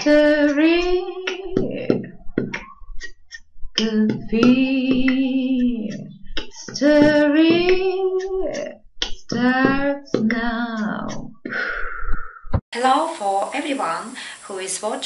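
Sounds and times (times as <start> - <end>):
woman singing long notes: 0.0 - 2.1, 3.8 - 11.4.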